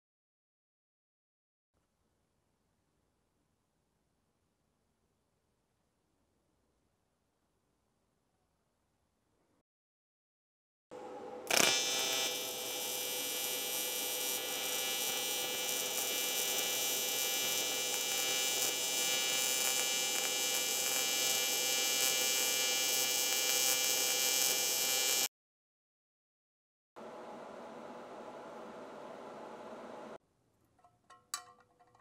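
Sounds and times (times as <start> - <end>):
welding arc buzzing: 11.4 - 25.3
welding arc striking crack: 11.5 - 25.3.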